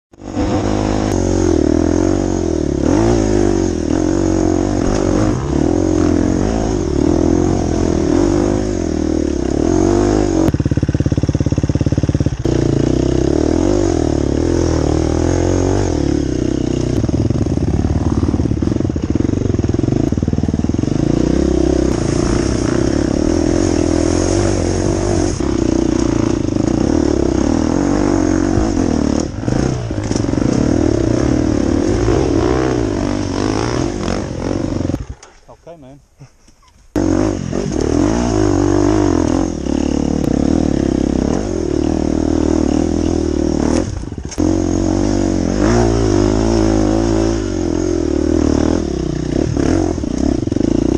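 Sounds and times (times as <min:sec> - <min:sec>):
dirt bike engine revving: 0:00.1 - 0:35.8, 0:36.9 - 0:50.9.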